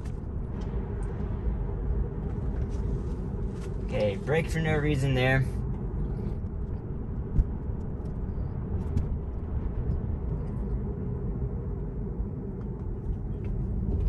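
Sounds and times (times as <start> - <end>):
road and tyre rumble in car: 0.0 - 14.0.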